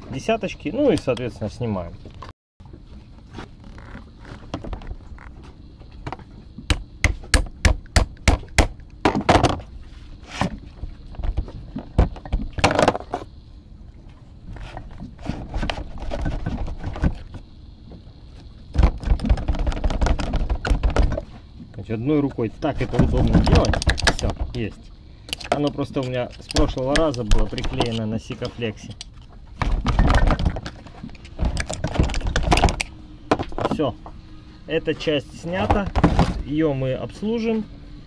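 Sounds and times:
metal tools clicking and knocking: 25.3s - 29.3s.

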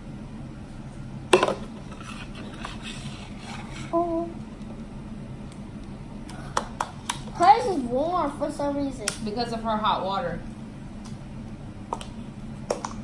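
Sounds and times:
plastic cup knocked on stone: 1.4s - 1.6s.

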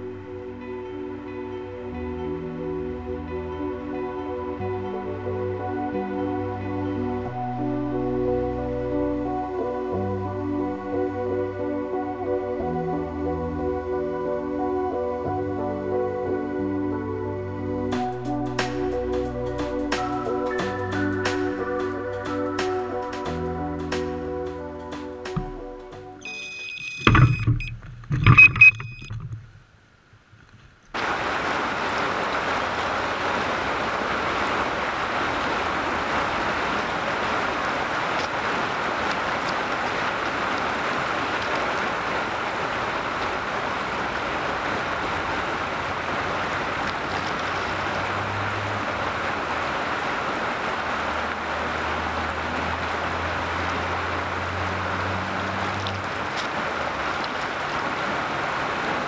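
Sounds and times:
river water rushing: 30.9s - 59.0s.

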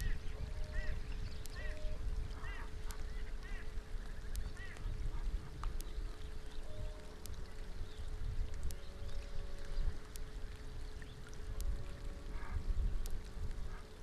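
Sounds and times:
bird calling: 0.0s - 8.0s
rain falling: 0.0s - 14.0s
raindrops ticking on camera: 0.0s - 14.0s.

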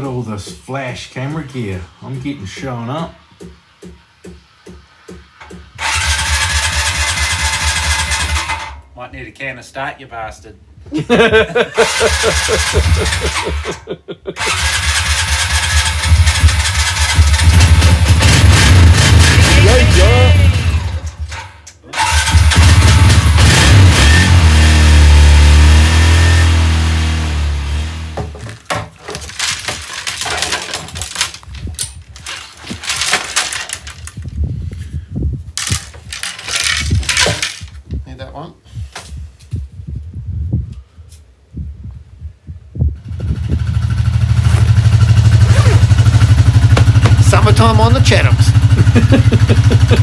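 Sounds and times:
quad bike engine starting and running: 5.7s - 8.8s, 11.8s - 13.8s, 14.4s - 28.3s, 42.9s - 50.0s
hard objects clicking together: 28.4s - 34.3s, 35.6s - 37.9s.

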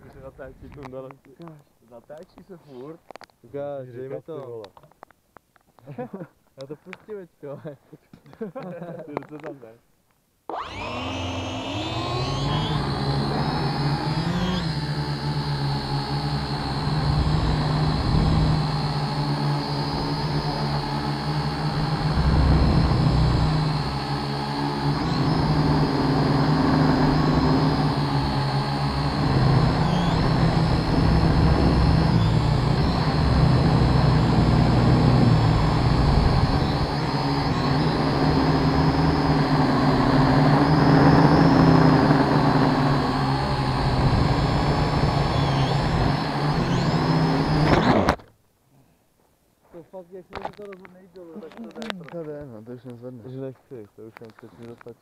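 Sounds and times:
drone propellers buzzing: 10.5s - 48.2s.

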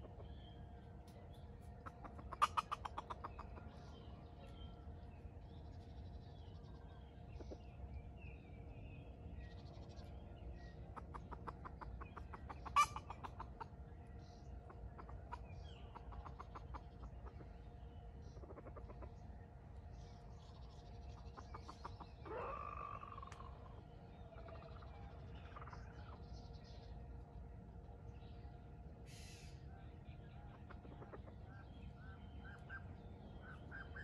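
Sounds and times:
small birds chirping: 0.0s - 34.0s
chicken clucking: 1.8s - 4.0s, 11.0s - 13.7s.

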